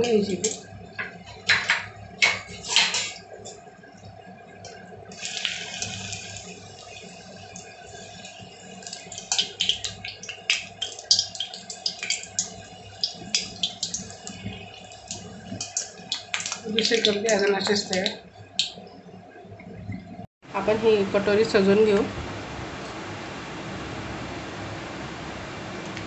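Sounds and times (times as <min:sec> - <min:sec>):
dough deep-frying in hot oil: 0:00.0 - 0:19.5.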